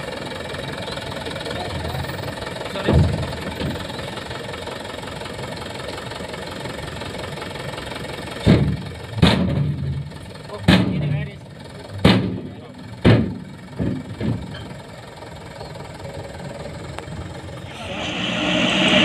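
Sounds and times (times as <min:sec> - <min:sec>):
diesel engine running: 0:00.0 - 0:19.0
hydraulic tipper bed lowering: 0:17.6 - 0:19.0.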